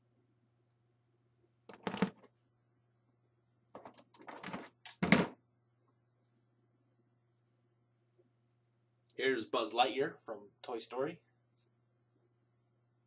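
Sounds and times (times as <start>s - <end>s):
plastic figures clattering and knocking: 1.7s - 2.3s, 3.8s - 5.4s.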